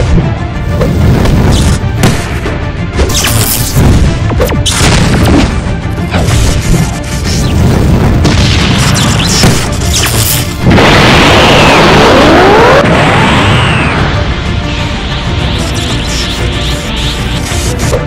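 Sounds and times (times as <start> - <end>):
music: 0.0 - 18.0
rushing power-up sound effect: 10.0 - 14.3.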